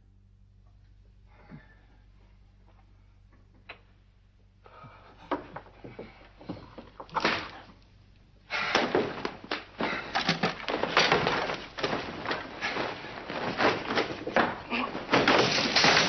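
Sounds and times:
heavy drapes rustling: 8.4 - 16.0.

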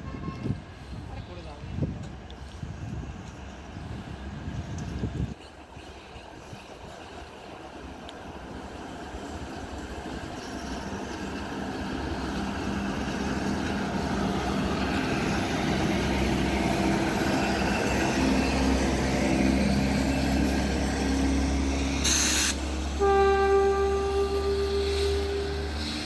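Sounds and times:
train passing: 0.0 - 26.0
short hiss: 22.0 - 22.7.

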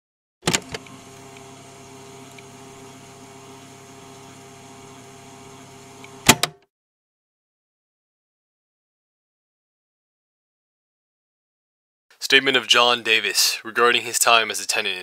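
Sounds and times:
electrical hum with hiss: 0.8 - 6.3.

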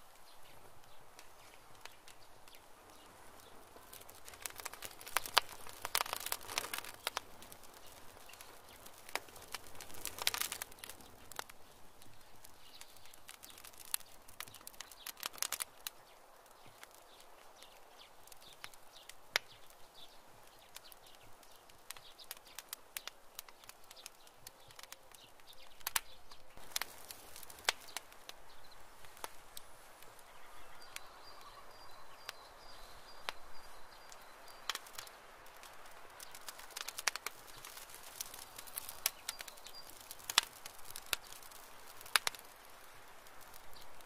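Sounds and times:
clods of earth dropping: 1.2 - 15.9, 34.0 - 44.0
rabbit claws scratching soil: 3.3 - 15.9.

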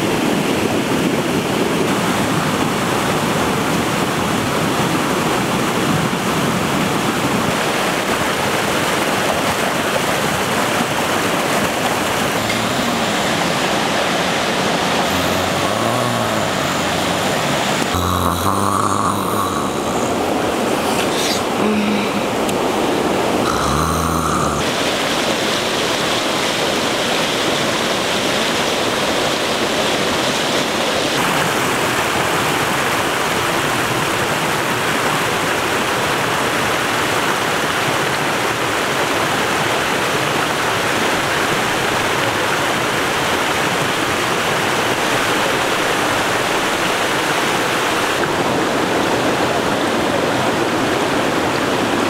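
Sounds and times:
stream rushing over rocks: 0.0 - 52.0.

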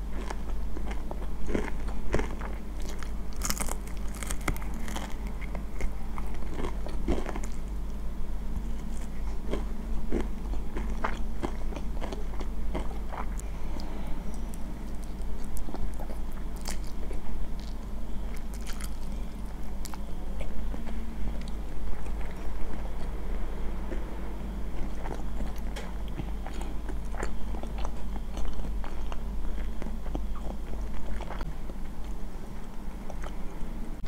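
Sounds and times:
crunchy food crunching: 0.0 - 23.2, 24.7 - 33.7
low hum: 0.0 - 34.0
chewing mouth sounds: 24.8 - 33.4.

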